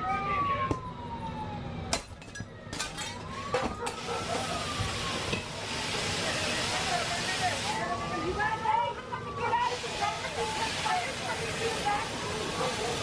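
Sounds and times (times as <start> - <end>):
siren wailing: 0.0 - 13.0
hiss: 9.6 - 13.0.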